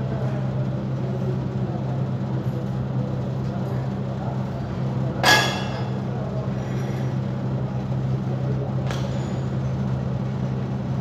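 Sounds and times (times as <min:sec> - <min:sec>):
low machine hum: 0:00.0 - 0:11.0
ringing metal clang: 0:05.2 - 0:06.0.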